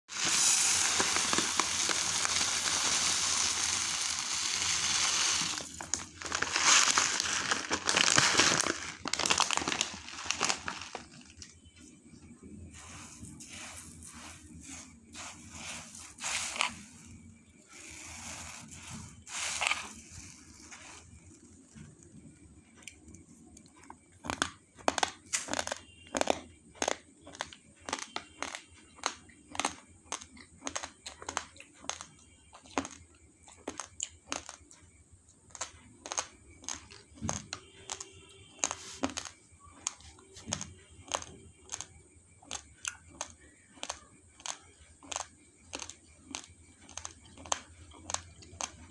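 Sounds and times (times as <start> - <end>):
rice grains rustling in a pot: 0.1 - 11.5, 12.7 - 21.8
raw rice being chewed: 12.7 - 34.9, 35.5 - 48.9.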